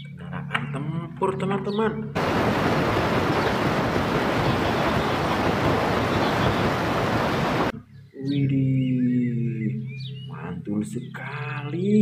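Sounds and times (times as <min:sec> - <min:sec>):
loud steady rushing noise: 0:02.2 - 0:07.7.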